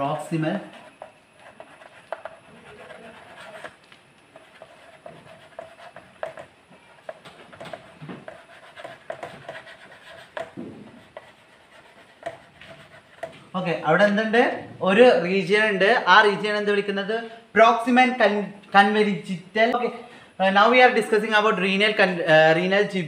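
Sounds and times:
chalk scratching on chalkboard: 0.2s - 13.4s
chalk tapping on board: 0.7s - 13.4s.

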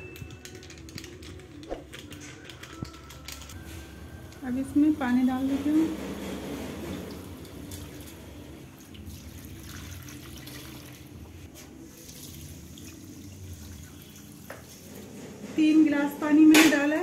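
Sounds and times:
water pouring into metal pot: 7.1s - 11.2s, 11.8s - 14.8s.

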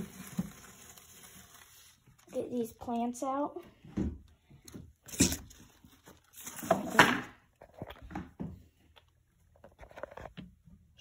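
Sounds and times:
leafy rustle: 0.0s - 2.6s.

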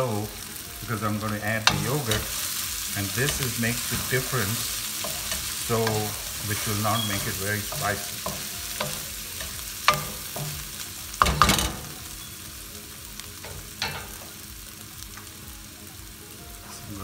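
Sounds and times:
chicken sizzling in a frying pan: 0.0s - 17.0s
spatula knocking against pan: 8.1s - 11.9s.

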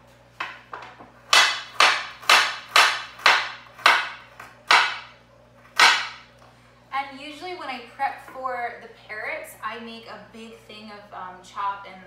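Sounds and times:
knife chopping on cutting board: 1.3s - 5.1s, 5.8s - 6.2s.

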